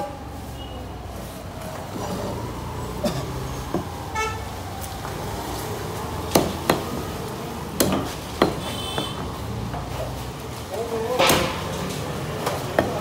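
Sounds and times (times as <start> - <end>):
street noise: 0.0 - 13.0
knife chopping on wooden block: 7.8 - 9.1.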